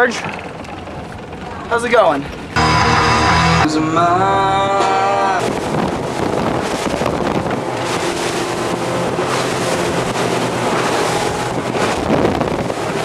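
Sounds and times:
motorboat engine and water rush: 0.0s - 2.6s, 3.7s - 13.0s
wind on the microphone: 5.3s - 13.0s.

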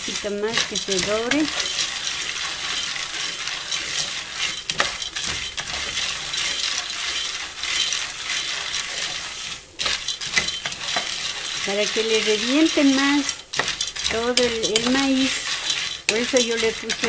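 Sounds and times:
corn kernels sizzling in oil: 0.0s - 17.0s
wooden spoon scraping a pot: 0.0s - 17.0s.

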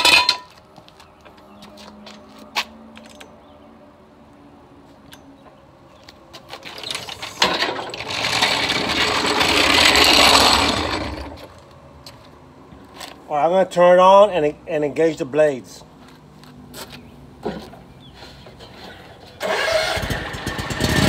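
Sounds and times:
floor jack rolling on concrete: 6.6s - 11.6s.

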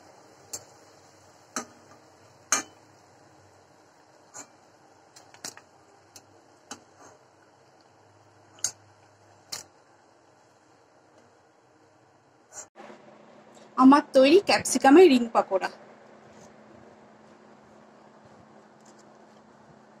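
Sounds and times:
metal spatula clinking on pan: 2.5s - 2.8s.

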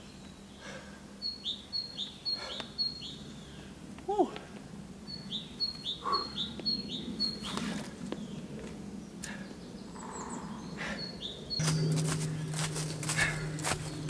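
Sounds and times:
songbird calling: 0.0s - 4.2s, 5.0s - 8.5s, 9.2s - 14.0s
low steady hum: 0.0s - 14.0s
quiet forest ambience: 0.0s - 14.0s
footsteps crunching dry leaves: 11.6s - 14.0s.

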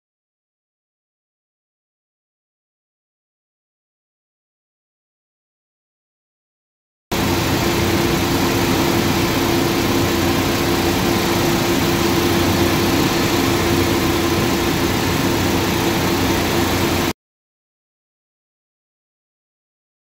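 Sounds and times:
steady hum: 7.1s - 17.1s
wire granulator mechanical drone: 7.1s - 17.1s.

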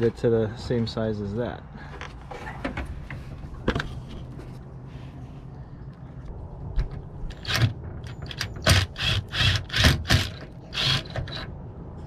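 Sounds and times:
drill drilling in short bursts: 9.0s - 11.1s.

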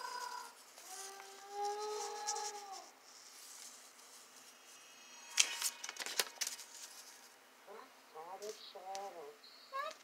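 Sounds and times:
paper rustling: 5.4s - 7.4s.

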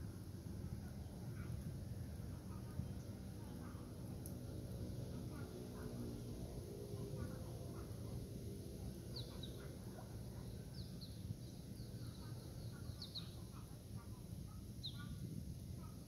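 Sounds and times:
birds chirping: 14.8s - 15.2s.

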